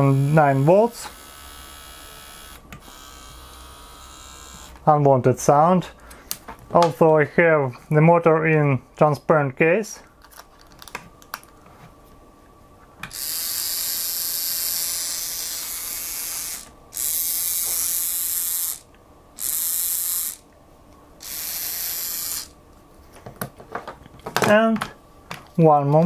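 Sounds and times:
electric motor whirring buzz: 0.0 - 4.8, 13.1 - 20.4, 21.2 - 22.6.

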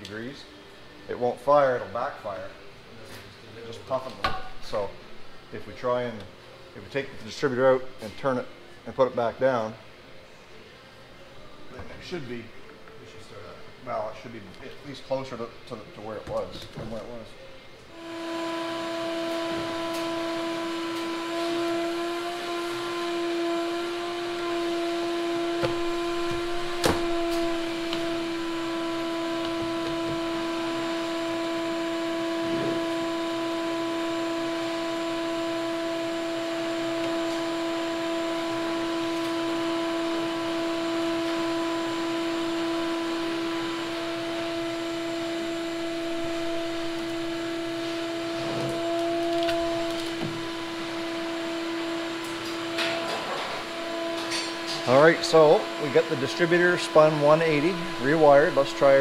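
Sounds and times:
machine humming: 17.4 - 59.0.

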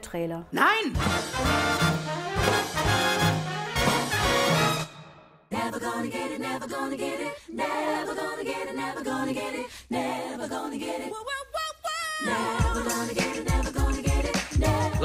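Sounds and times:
a cappella group singing: 5.5 - 15.0.

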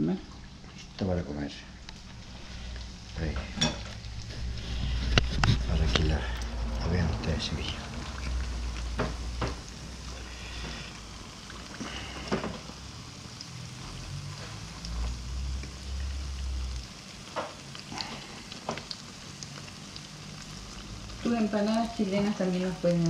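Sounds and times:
empanadas sizzling in hot oil: 0.3 - 23.0
metal forks clinking on pan: 3.6 - 3.9.

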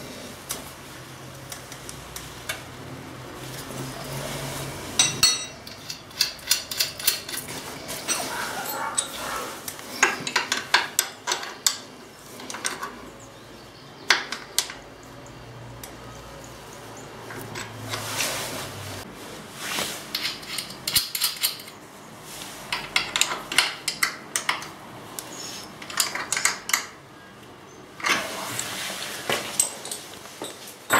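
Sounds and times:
wrenches clinking on bolts: 5.0 - 13.1, 20.2 - 21.8, 25.8 - 27.0.

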